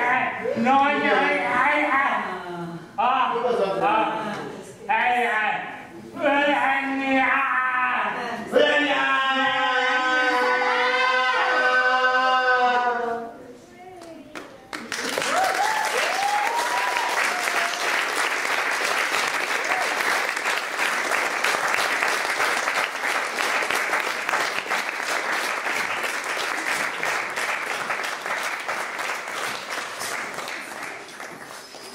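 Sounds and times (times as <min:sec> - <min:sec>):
audience applauding: 0:14.7 - 0:31.9.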